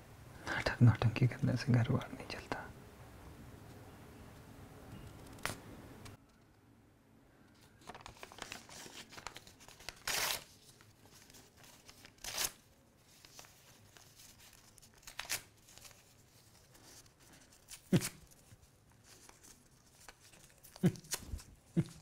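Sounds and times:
paper rustling and crinkling: 7.5s - 22.0s
paper tearing: 7.9s - 16.2s, 16.8s - 18.5s, 19.1s - 22.0s.

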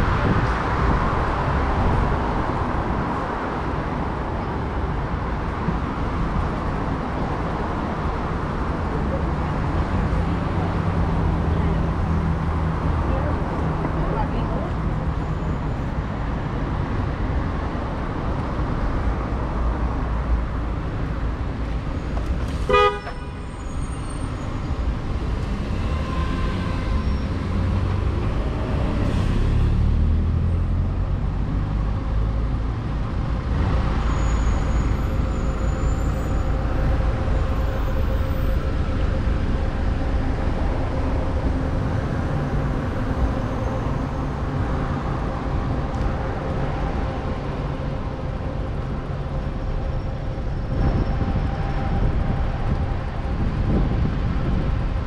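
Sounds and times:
city road traffic: 0.0s - 55.0s
car horn beep: 22.7s - 23.5s.

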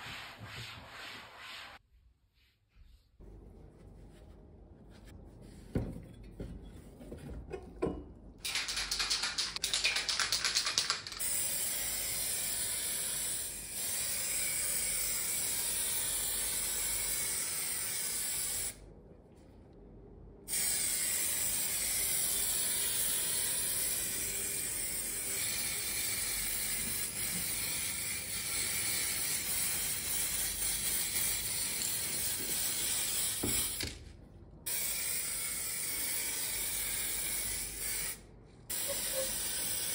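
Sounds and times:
spray can rattling: 8.4s - 12.4s
spray can hissing: 38.7s - 39.9s.

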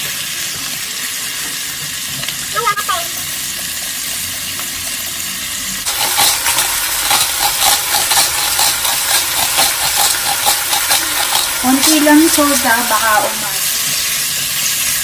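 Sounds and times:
food sizzling in hot oil: 0.0s - 15.0s
salt shaker shaking: 5.8s - 15.0s.

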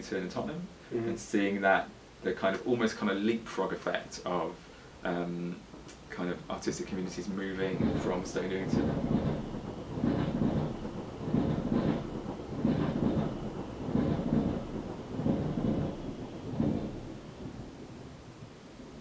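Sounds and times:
loud low rumbling: 6.9s - 18.3s.

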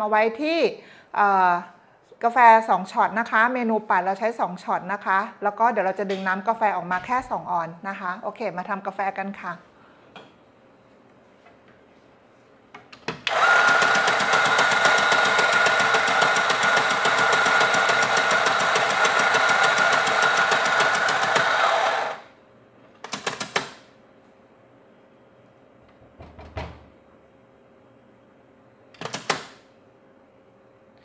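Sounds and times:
electric coffee grinder grinding: 13.3s - 22.3s.

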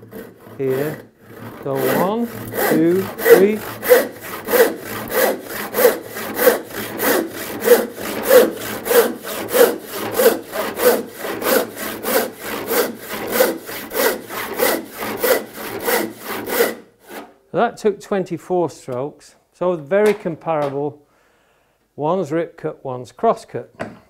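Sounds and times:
handsaw ripping wood: 0.0s - 17.3s.

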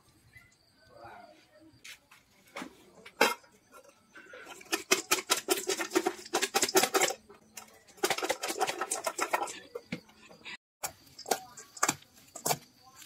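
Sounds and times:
metal bowl and lid rattling: 3.2s - 12.6s.

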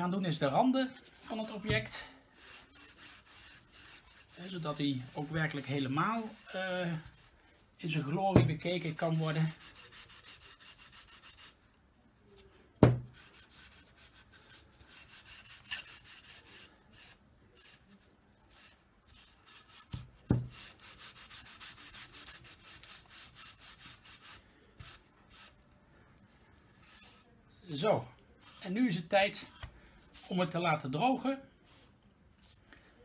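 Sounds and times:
cloth rubbing wood: 1.0s - 11.7s, 12.4s - 25.6s.

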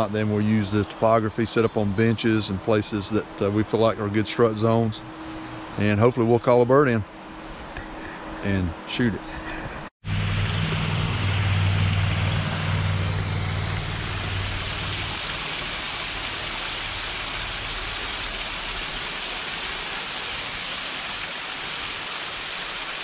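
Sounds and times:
low steady hum: 0.0s - 21.9s
stream trickling over rocks: 12.8s - 23.0s.

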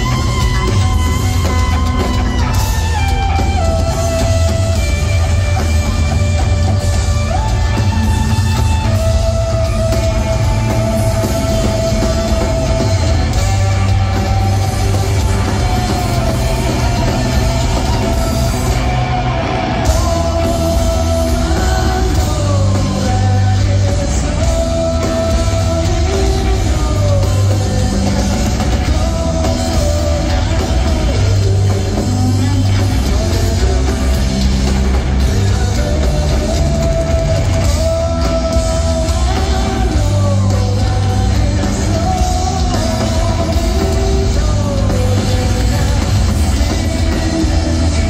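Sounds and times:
live rock band playing: 0.0s - 48.0s.

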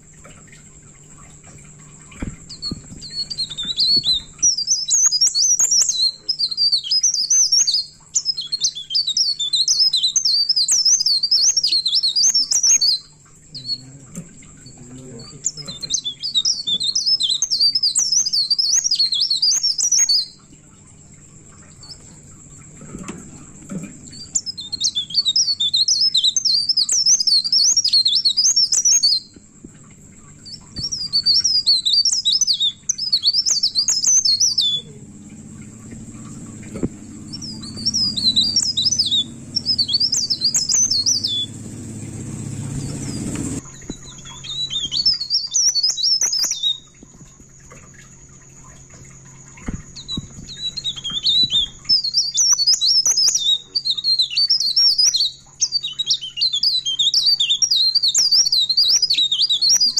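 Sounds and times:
bird twittering song: 0.0s - 20.5s, 21.5s - 59.9s
thin high whine: 33.9s - 44.2s.

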